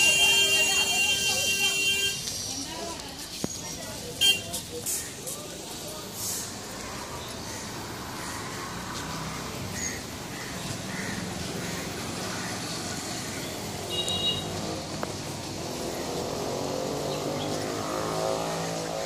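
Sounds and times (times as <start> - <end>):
road ambience: 0.0 - 19.0
vehicle engine approaching: 14.6 - 19.0.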